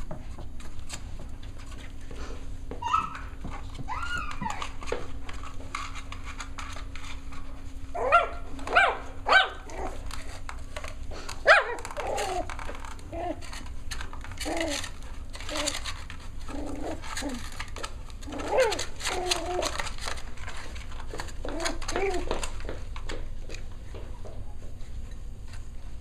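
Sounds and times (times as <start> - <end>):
puppies yipping and barking: 2.8 - 4.8.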